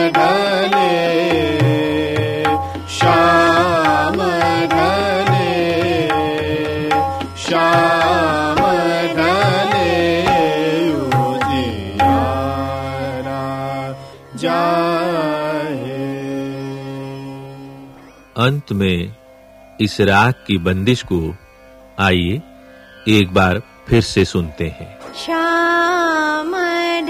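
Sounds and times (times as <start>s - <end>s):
tabla: 0.0s - 17.4s
classical vocal singing: 0.0s - 18.0s, 25.2s - 27.0s
steady drone: 1.2s - 14.5s.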